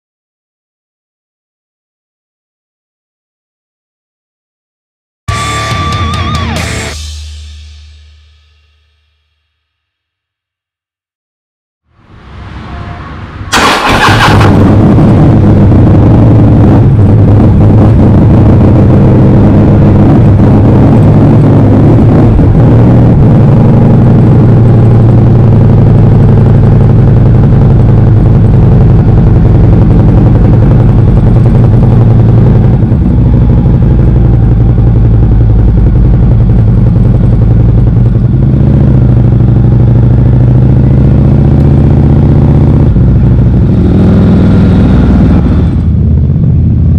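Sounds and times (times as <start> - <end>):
motorcycle engine starting and running: 13.5 - 46.9.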